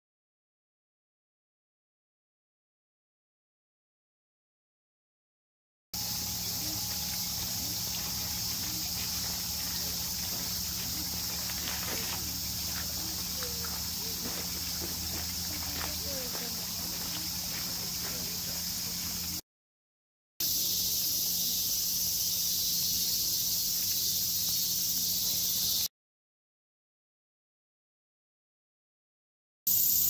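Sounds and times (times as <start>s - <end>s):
insect chorus: 6.0s - 19.4s, 20.4s - 25.9s, 29.7s - 30.0s.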